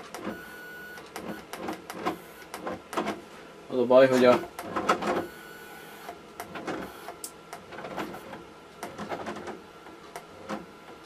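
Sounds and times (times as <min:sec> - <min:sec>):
motor clicks and ticks: 0:04.1 - 0:11.0.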